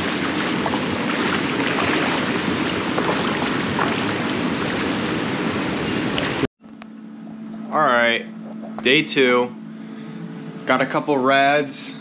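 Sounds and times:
surf splashing around pilings: 0.0 - 6.5.

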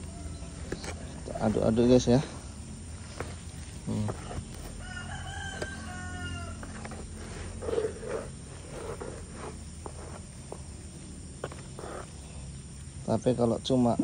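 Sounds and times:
rooster crowing: 0.0 - 0.8, 4.6 - 8.2.

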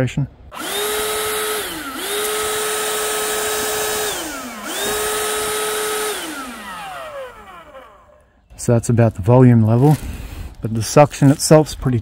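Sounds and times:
hand vacuum whining: 0.5 - 8.4.

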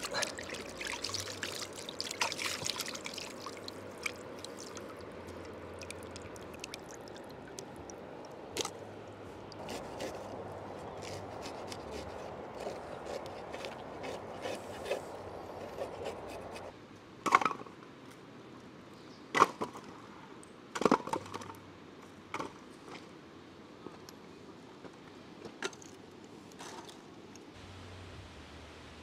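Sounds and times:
river water running over stones: 0.0 - 10.7.

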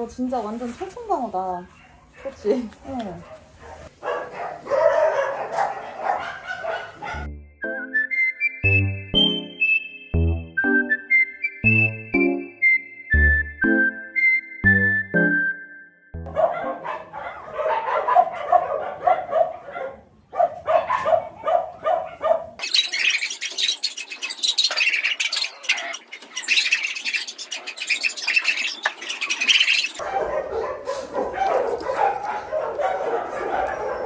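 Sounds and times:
dogs barking: 1.7 - 7.3, 16.2 - 34.0
background music: 7.1 - 16.5.

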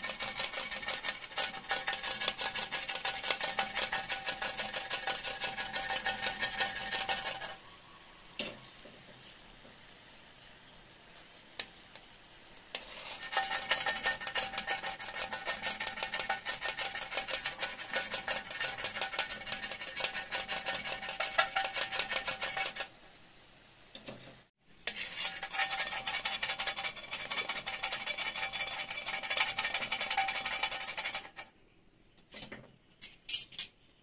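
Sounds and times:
metal tongs scraping a pan: 0.0 - 7.6, 12.7 - 22.9, 24.8 - 31.5
food deep-frying in oil: 11.6 - 31.4.

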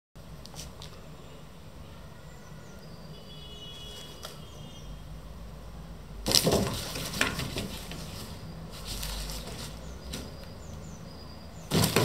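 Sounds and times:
cardboard box crackling and scraping: 6.3 - 10.7, 11.7 - 12.0
cardboard snap: 11.7 - 12.0.

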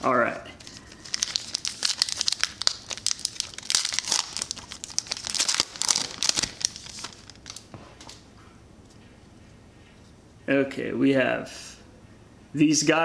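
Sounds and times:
plastic wrapper crinkling: 0.6 - 8.2.

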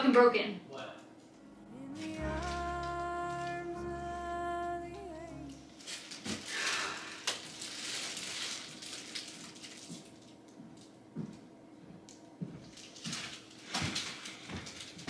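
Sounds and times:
held musical note with deep bass: 1.4 - 5.8
plastic wrap crinkling: 1.9 - 3.8, 5.5 - 10.9, 12.6 - 15.0.

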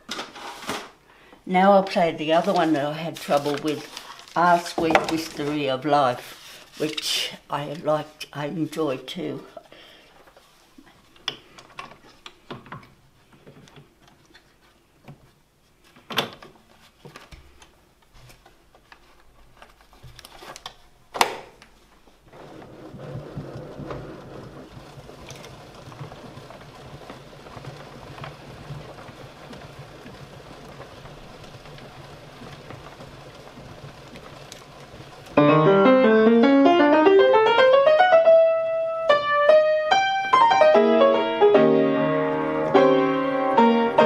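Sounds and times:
roll mechanism hissing and humming: 22.2 - 37.6.

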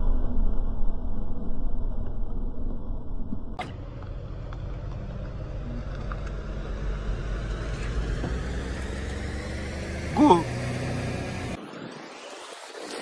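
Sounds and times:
car engine rumbling: 0.0 - 11.6
tyres rolling over asphalt: 3.6 - 13.0.

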